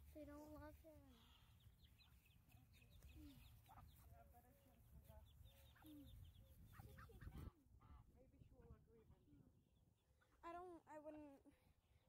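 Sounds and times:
ducklings peeping: 0.3s - 7.5s.

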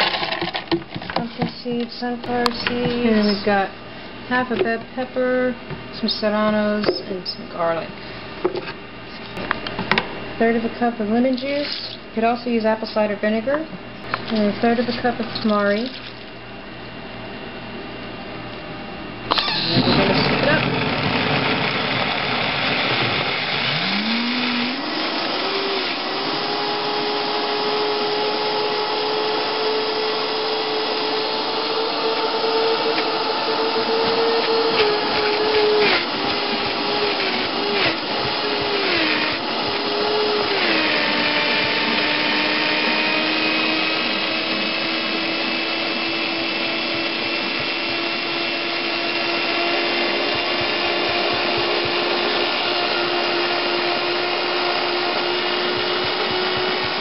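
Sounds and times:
blender motor grinding: 19.3s - 57.0s.

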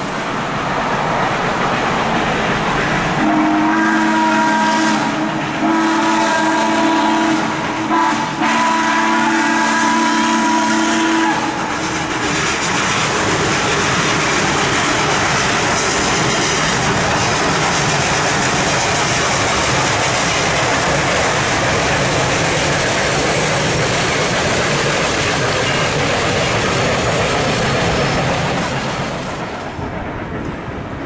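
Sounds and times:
train crossing steel bridge: 0.0s - 31.0s
steam locomotive chime whistle: 3.2s - 11.6s.

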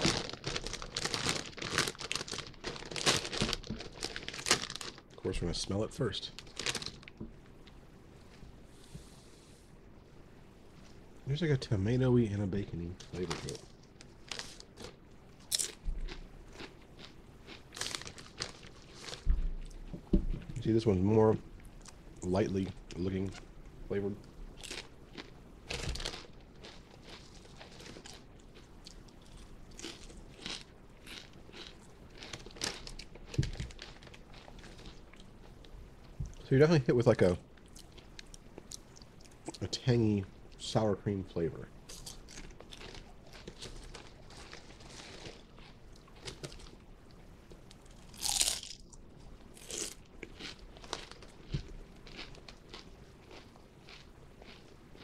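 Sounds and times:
potato chips crunching: 0.0s - 5.2s, 13.0s - 19.2s, 24.6s - 35.2s, 41.9s - 46.8s, 47.9s - 49.0s, 49.6s - 55.0s.

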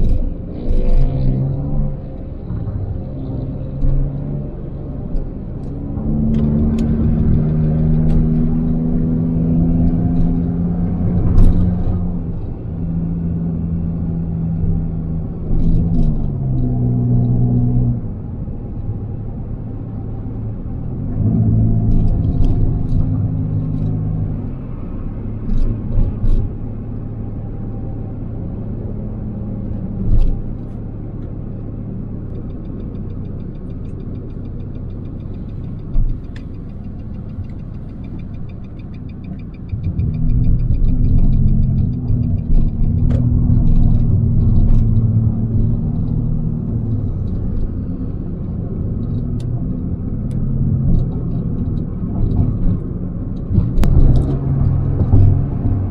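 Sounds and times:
car engine inside cabin: 0.0s - 55.9s
road rumble: 0.0s - 55.9s
sharp clicks and knocks: 32.2s - 55.9s.

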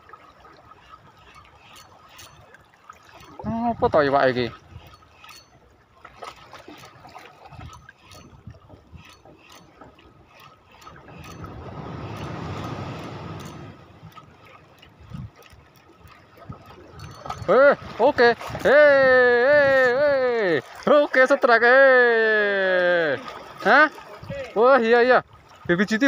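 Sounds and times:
water lapping against rocks: 0.0s - 26.0s
fishing reel ticking: 0.6s - 17.6s, 18.4s - 20.8s
wave washing over rocks: 11.4s - 14.1s.

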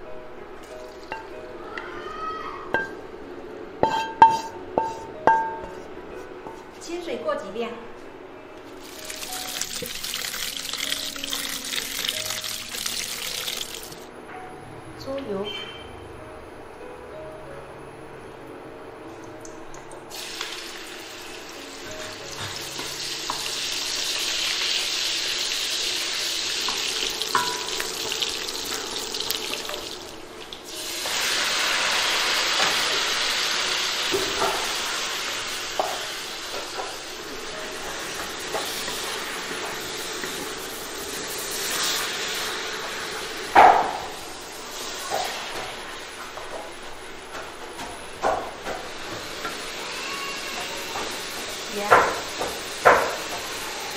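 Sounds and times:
spatula knocking against pan: 3.8s - 5.8s
greens sizzling in a wok: 8.7s - 14.1s, 20.1s - 46.8s, 47.4s - 53.9s.

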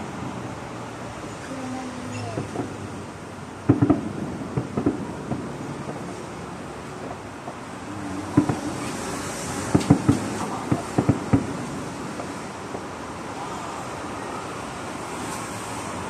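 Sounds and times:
firework shells bursting: 3.7s - 6.1s, 8.3s - 12.9s.

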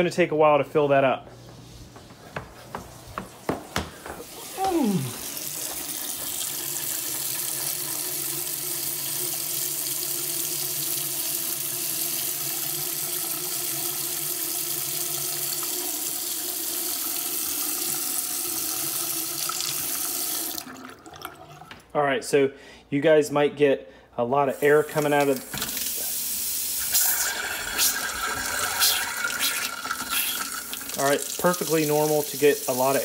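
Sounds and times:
faucet running into sink: 4.2s - 21.9s, 24.6s - 33.0s.

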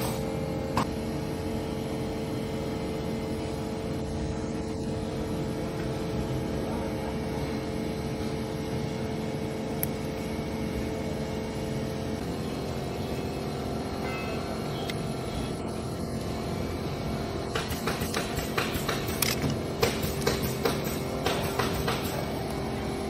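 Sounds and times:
mechanical drone with hum: 0.0s - 23.0s.

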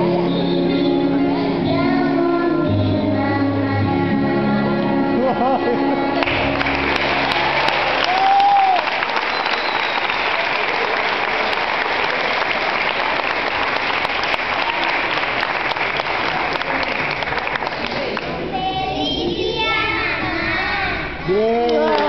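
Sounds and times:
audience applauding: 6.2s - 18.5s, 21.6s - 22.0s.

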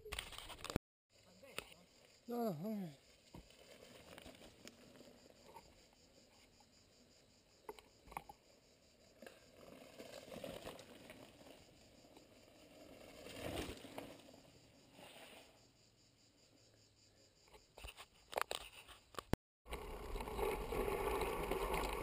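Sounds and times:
bike tyres rolling on dirt: 2.9s - 6.3s, 8.5s - 15.6s, 19.7s - 22.0s.

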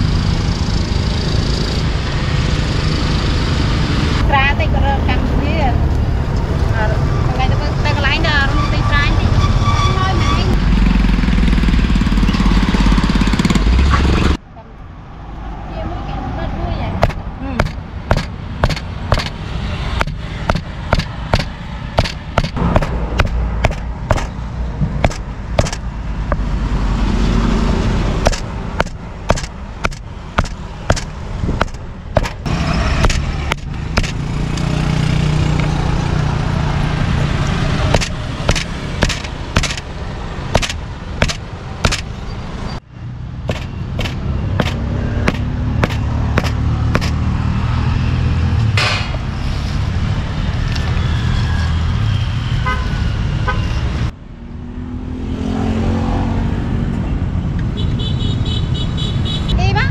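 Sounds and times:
low rumble of engines: 0.0s - 59.9s
cleaver chopping meat: 17.0s - 19.4s, 20.0s - 24.3s, 25.0s - 26.4s, 28.2s - 32.4s, 33.0s - 34.2s, 37.9s - 39.9s, 40.5s - 42.1s, 43.5s - 47.2s.

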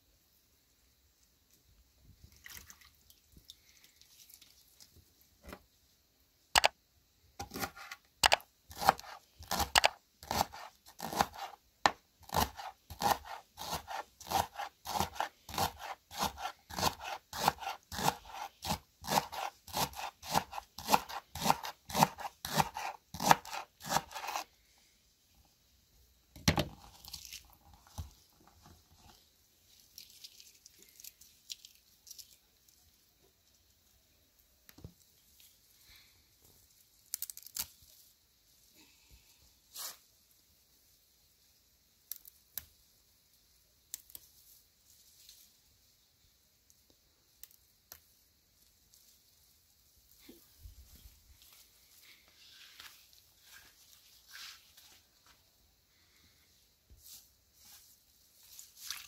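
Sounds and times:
knife chopping on wooden board: 7.4s - 24.4s.

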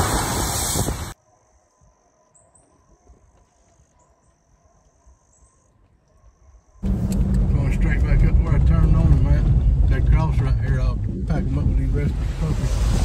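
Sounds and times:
faint high-pitched chirping: 1.2s - 6.8s.

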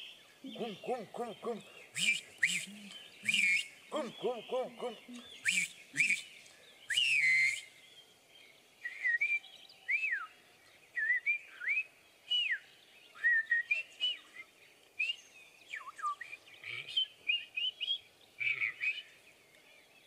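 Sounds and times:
breathy puffs: 0.4s - 5.4s
man whistling bird calls: 0.5s - 7.8s, 8.8s - 10.3s, 11.0s - 16.4s.

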